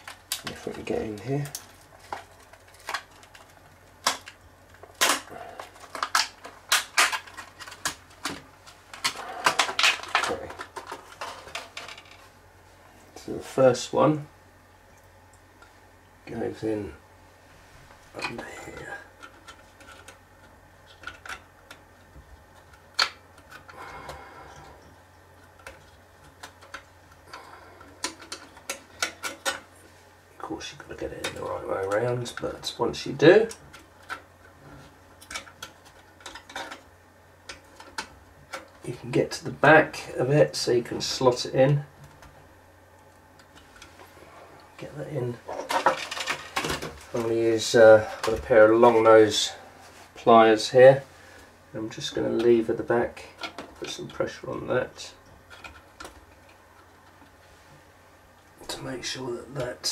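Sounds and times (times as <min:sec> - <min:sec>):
plastic packaging cracking: 0:00.0 - 0:12.1.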